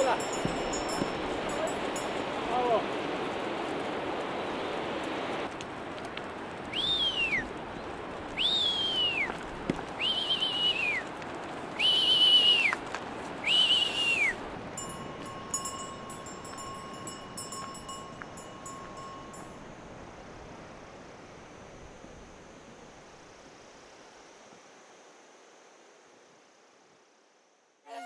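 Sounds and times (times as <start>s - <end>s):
person whistling: 6.8s - 7.4s, 8.4s - 9.3s, 10.0s - 11.0s, 11.8s - 12.8s, 13.4s - 14.4s.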